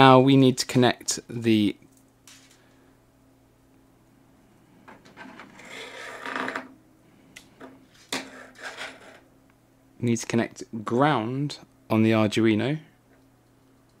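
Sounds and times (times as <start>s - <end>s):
electronics scraping on tabletop: 5.2s - 6.7s, 8.0s - 9.2s.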